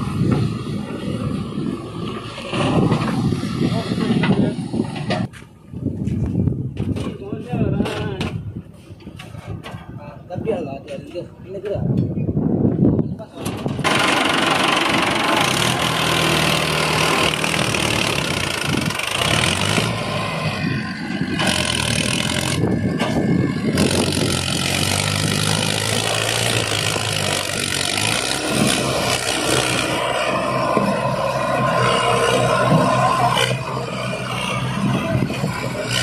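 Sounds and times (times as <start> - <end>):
tractor diesel engine under load: 0.0 - 11.8, 13.1 - 36.0.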